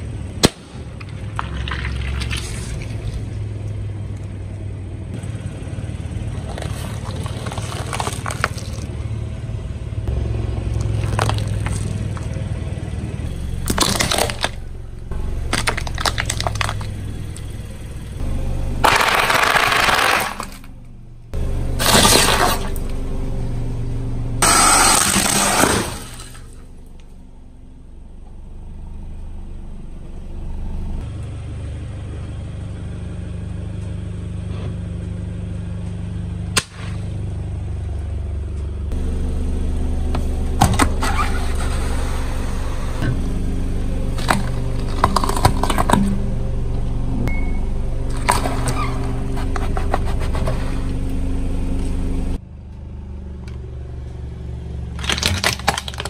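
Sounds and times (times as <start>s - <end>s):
car engine running: 0.0s - 56.0s
tyre crushing brittle objects: 6.4s - 8.9s, 10.8s - 12.4s, 13.6s - 14.6s, 15.5s - 17.0s, 18.8s - 20.7s, 21.8s - 22.8s, 24.4s - 26.5s, 44.1s - 46.2s, 55.0s - 56.0s.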